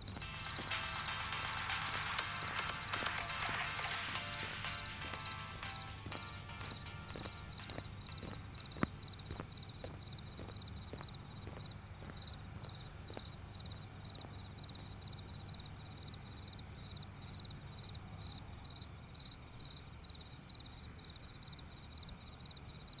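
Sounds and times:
faint footsteps: 0:00.0 - 0:15.3
cricket chirping: 0:00.0 - 0:23.0.

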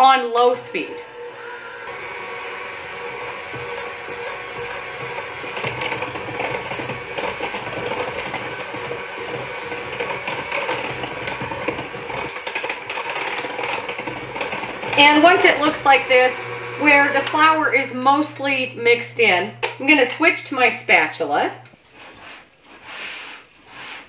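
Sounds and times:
electric hand mixer running: 0:00.4 - 0:21.6.

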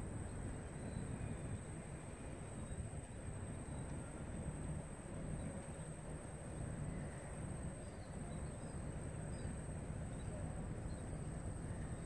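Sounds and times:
faint bird chirps: 0:00.3 - 0:04.2, 0:06.8 - 0:12.0.

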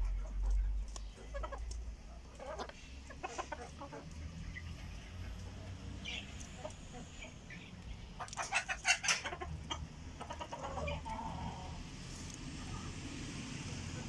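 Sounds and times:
chickens clucking: 0:00.0 - 0:14.0
chicken drawn-out call: 0:08.2 - 0:11.9.

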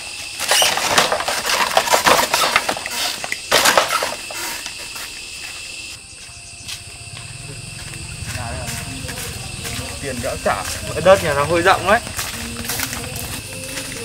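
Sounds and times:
bamboo gate rattling and scraping: 0:00.4 - 0:05.0.

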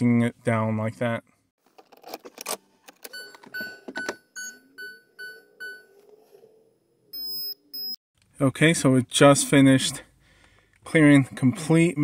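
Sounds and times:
sharp high beeps: 0:07.2 - 0:08.0.

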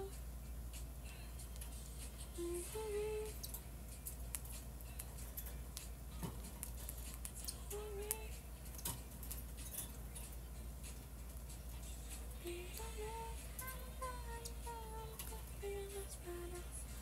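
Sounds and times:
woman humming: 0:02.3 - 0:03.4, 0:12.4 - 0:17.0.

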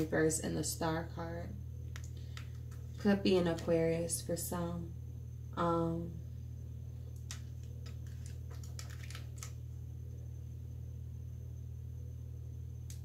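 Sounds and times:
steady low hum: 0:00.0 - 0:13.0
cards being shuffled: 0:07.3 - 0:09.6.

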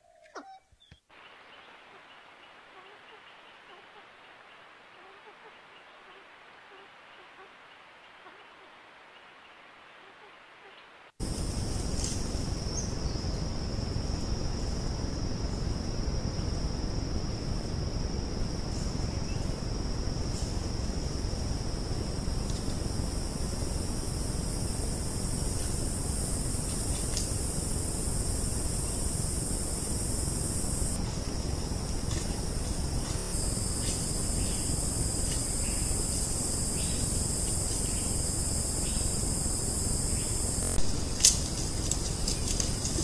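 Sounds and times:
constant hiss: 0:00.0 - 0:43.0
high-pitched insect drone: 0:11.2 - 0:43.0.

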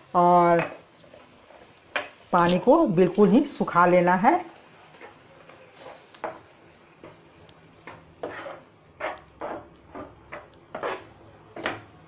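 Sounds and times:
spatula scraping a frying pan: 0:00.5 - 0:02.2, 0:04.8 - 0:12.0.

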